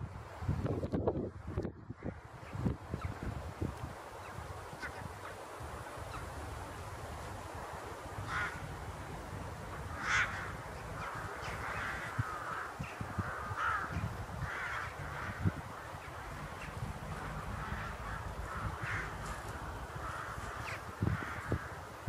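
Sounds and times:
crows cawing: 0:08.2 - 0:08.7, 0:09.7 - 0:21.9.

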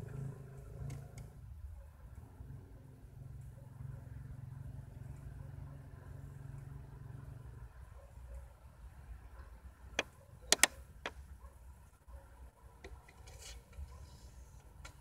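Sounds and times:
cd changer mechanical clicks: 0:10.5 - 0:10.7.

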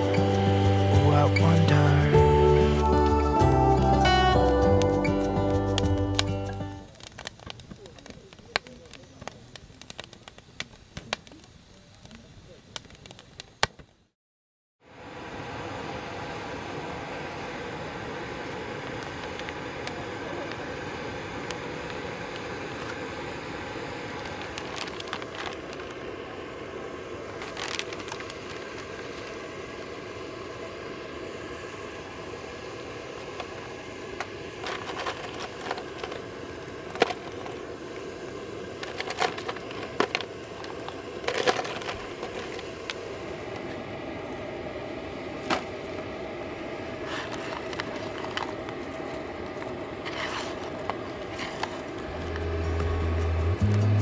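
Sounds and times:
gas burner hissing: 0:00.0 - 0:13.7, 0:14.9 - 0:54.0
shellfish and plastic tub clacking: 0:38.8 - 0:42.7.

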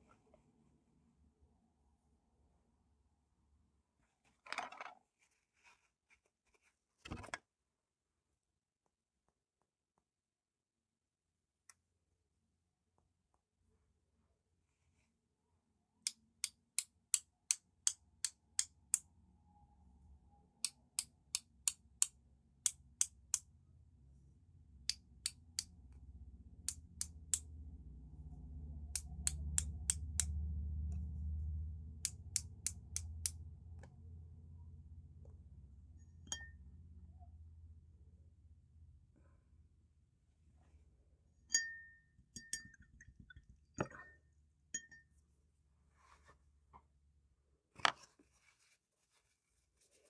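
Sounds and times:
clink: 0:36.1 - 0:36.6, 0:41.5 - 0:43.1, 0:43.8 - 0:45.2.

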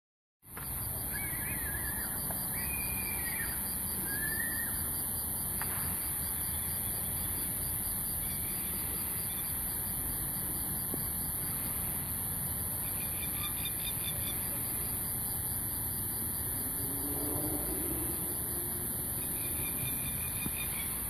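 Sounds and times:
constant high hiss: 0:00.5 - 0:16.9.

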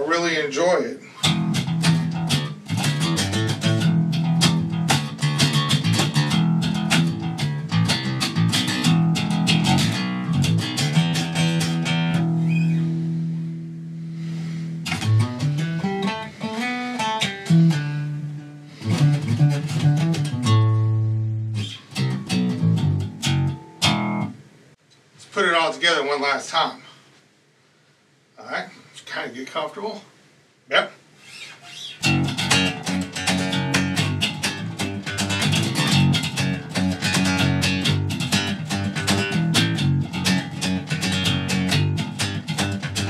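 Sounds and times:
electric bass fingerstyle runs: 0:01.2 - 0:24.4, 0:31.9 - 0:43.0.

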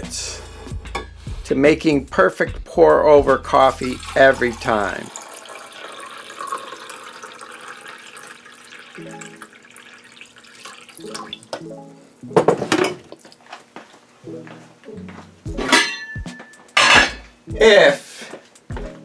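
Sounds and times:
background music: 0:00.0 - 0:06.4, 0:08.4 - 0:13.2, 0:14.2 - 0:19.0
water pouring into a metal mug: 0:03.8 - 0:11.5.

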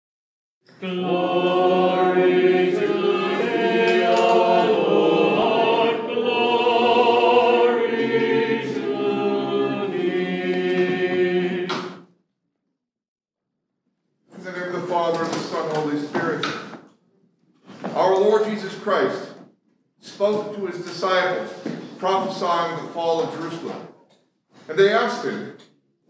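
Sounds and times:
a cappella choir chanting: 0:00.7 - 0:12.1.

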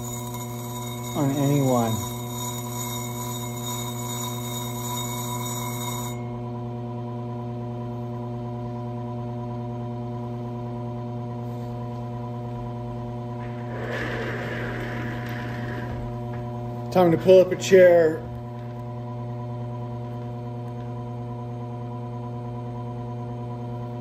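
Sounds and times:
high-pitched whine: 0:00.0 - 0:06.4
grinder motor humming: 0:00.0 - 0:06.7, 0:13.3 - 0:17.0.

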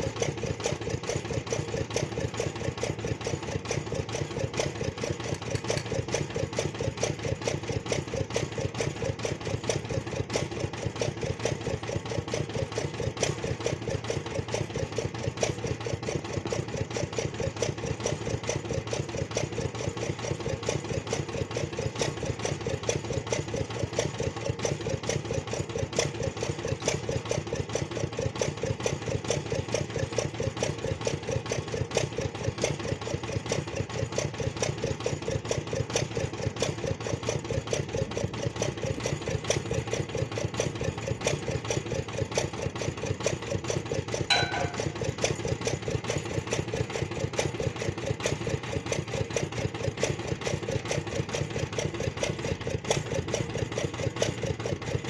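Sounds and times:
drilling rig engine knocking: 0:00.0 - 0:55.0.

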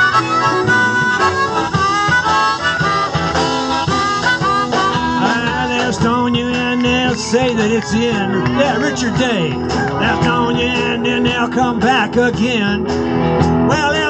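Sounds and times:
harmonica solo: 0:00.0 - 0:10.6
electric guitars: 0:00.0 - 0:14.0
steady drum beat: 0:00.0 - 0:14.0.

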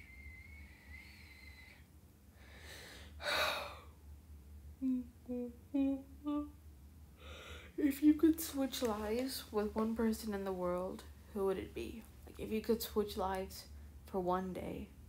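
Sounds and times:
woman breathing in loudly: 0:00.2 - 0:03.9, 0:07.2 - 0:07.8
woman humming short low hums: 0:04.8 - 0:06.6.

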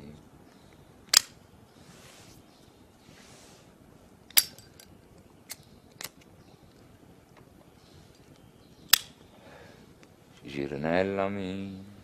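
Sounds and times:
low hiss: 0:00.0 - 0:12.0
sharp metallic clicks: 0:01.1 - 0:01.4.

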